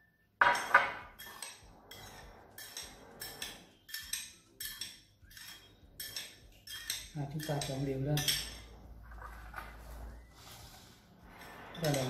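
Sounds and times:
spoon clinking on ceramic bowl: 0.5 - 8.7.

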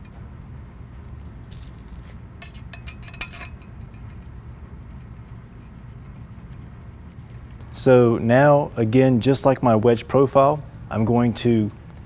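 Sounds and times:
low steady hum: 0.0 - 12.0
steel bolts clinking on metal rail: 2.4 - 4.1.

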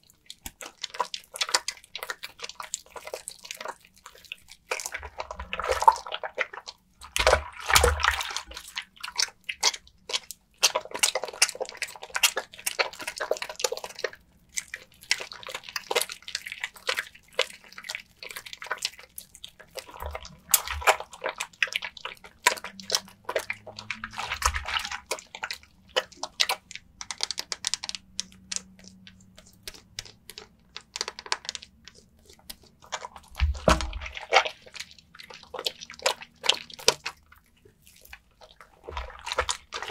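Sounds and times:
soap lather squishing: 0.0 - 39.9
water dripping: 11.0 - 39.9.

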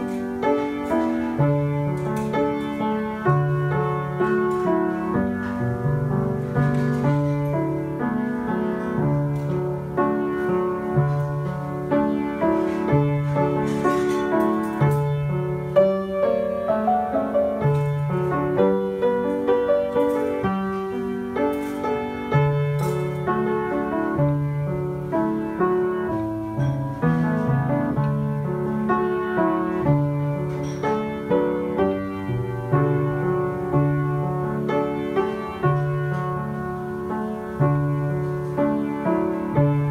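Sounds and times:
solo piano hymn: 0.0 - 39.9.

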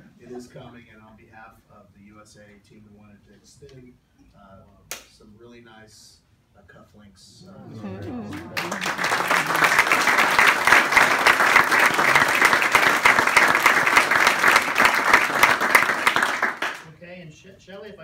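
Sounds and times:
audience applauding: 7.9 - 16.9.

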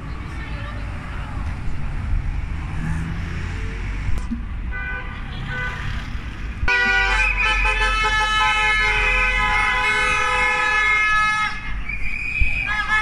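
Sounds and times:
passing car engines and tyres: 0.0 - 13.0
car horns honking: 4.7 - 6.0, 6.6 - 11.7, 12.6 - 13.0.

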